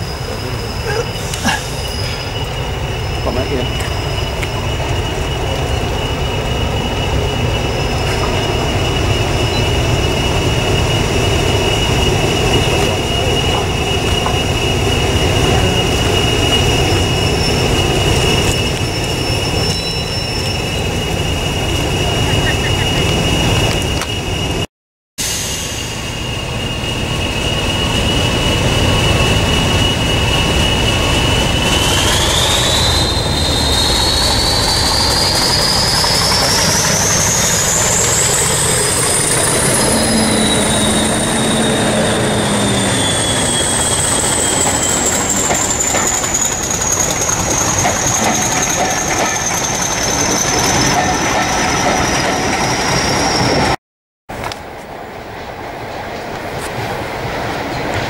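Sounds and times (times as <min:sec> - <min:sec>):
turbocharger whistle: 0:25.2 - 0:51.1
diesel engine rumble: 0:25.6 - 0:49.2
train wheels clickety-clack: 0:28.0 - 0:39.7, 0:42.2 - 0:53.8, 0:54.4 - 0:58.0.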